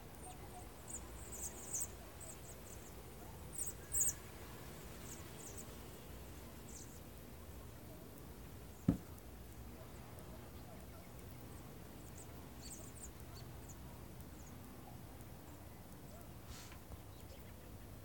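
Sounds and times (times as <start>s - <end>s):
faint outdoor background: 0.0s - 18.0s
sharp thump: 8.9s - 9.1s.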